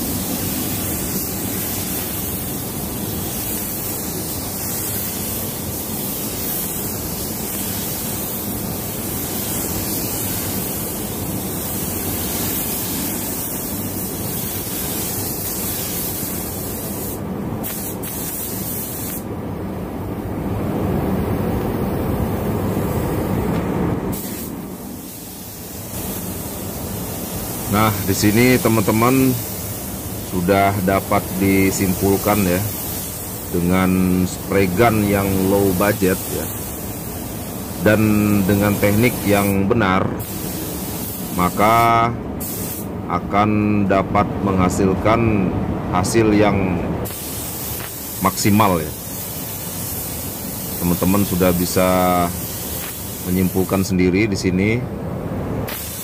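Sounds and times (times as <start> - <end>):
spray gun hissing: 0.0 - 19.3, 24.1 - 42.9, 47.0 - 54.0, 55.7 - 56.0.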